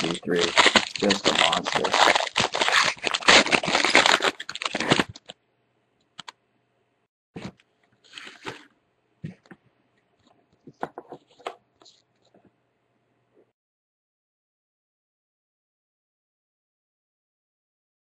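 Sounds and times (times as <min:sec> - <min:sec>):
plastic wrapper tearing and crinkling: 0:00.0 - 0:05.4.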